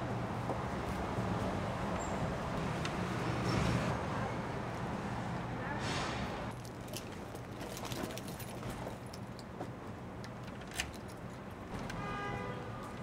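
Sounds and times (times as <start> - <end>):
keys jingling: 6.6 - 9.5.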